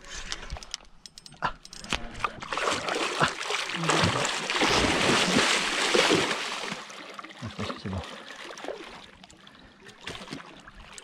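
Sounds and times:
fish splashing in water: 2.5s - 7.1s.

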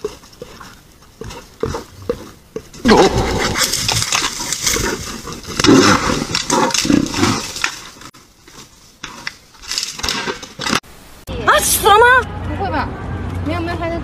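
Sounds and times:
bear growling and roaring: 2.8s - 8.0s.

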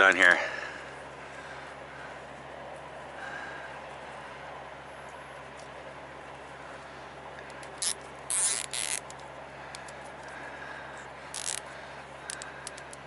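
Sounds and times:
zip ties rasping: 7.5s - 10.1s, 11.3s - 11.7s, 12.3s - 13.0s
small clicks: 12.3s - 13.0s.

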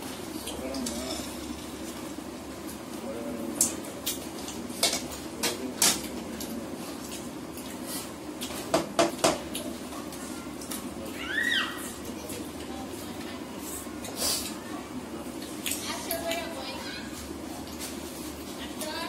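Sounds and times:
utensils clinking against plates: 0.4s - 1.6s, 4.4s - 7.7s.

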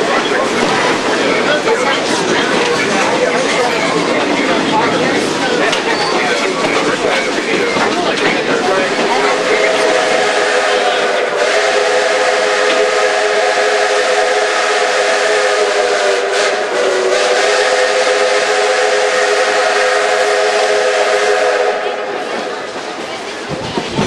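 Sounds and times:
train running noise: 0.0s - 24.0s
steam locomotive whistle blowing: 9.1s - 22.6s.

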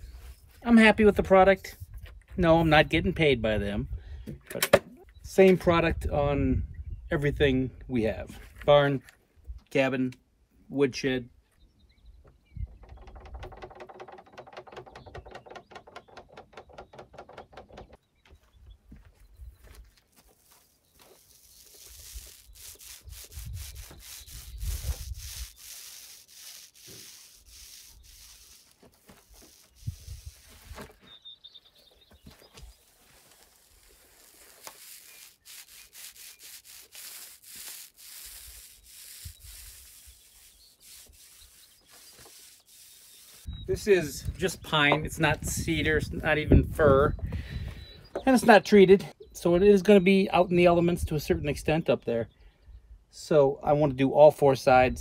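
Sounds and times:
paint roller scraping on boards: 20.4s - 31.2s, 32.2s - 43.5s.

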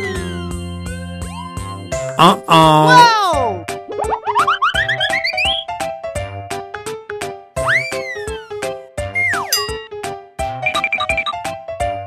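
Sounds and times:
playful background music: 0.0s - 12.0s
high tinkling notes: 9.5s - 9.9s.

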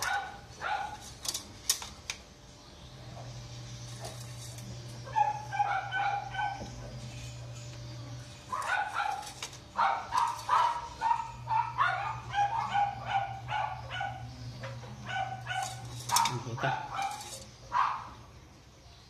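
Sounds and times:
dog barking: 0.0s - 1.0s, 5.1s - 6.9s, 8.5s - 18.2s.

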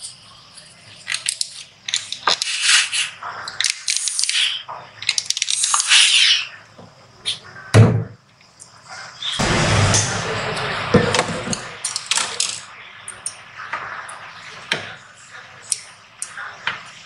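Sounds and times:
steam iron hissing: 2.4s - 3.2s.

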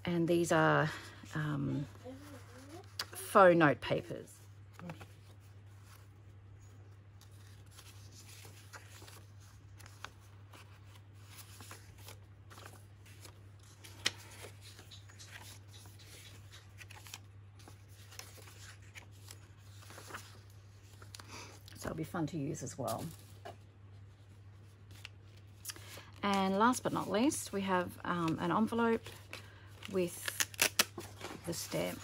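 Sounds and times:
paper sheets rustling: 7.1s - 21.2s, 24.6s - 32.0s.

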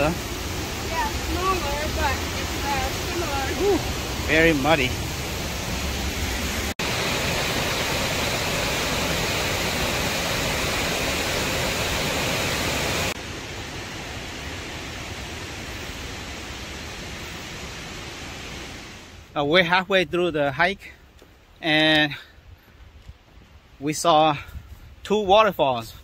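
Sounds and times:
waterfall rushing: 0.0s - 19.3s.

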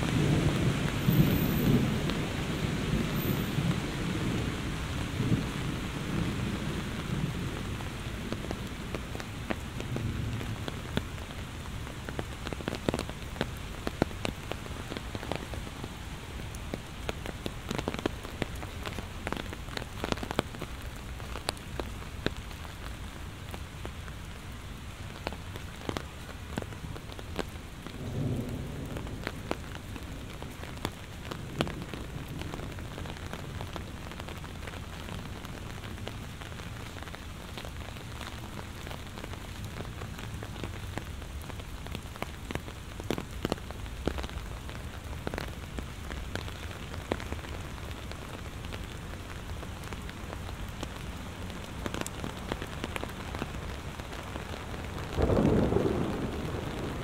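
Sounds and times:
low thunder rumbles: 0.0s - 9.1s, 27.7s - 35.3s, 54.8s - 57.0s
heavy rain falling: 0.0s - 57.0s
raindrops ticking: 0.0s - 57.0s.

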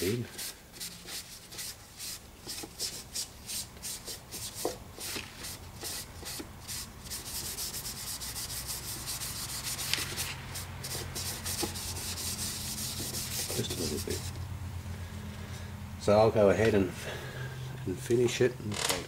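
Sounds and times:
tissue rubbing on plastic: 6.7s - 14.4s.

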